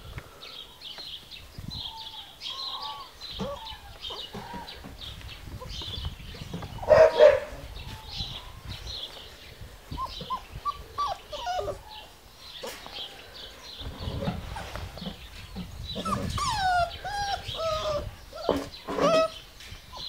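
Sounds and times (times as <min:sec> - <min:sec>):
puppies yelping: 0:02.7 - 0:04.8, 0:10.0 - 0:12.8, 0:15.8 - 0:20.0
puppy barking: 0:06.9 - 0:07.6.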